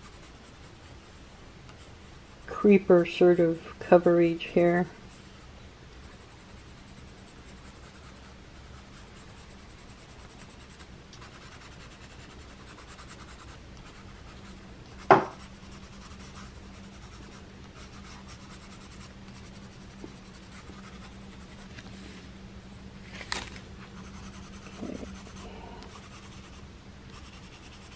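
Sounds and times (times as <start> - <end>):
pencil scratching on paper: 0.0 - 1.1, 6.0 - 21.7, 24.0 - 27.9
sharp knock: 15.1 - 15.4.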